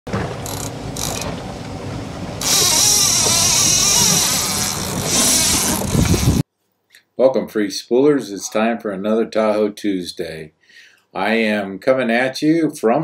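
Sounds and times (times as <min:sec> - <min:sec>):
boat engine running: 0:00.1 - 0:06.4
loud rushing hiss: 0:02.4 - 0:06.4.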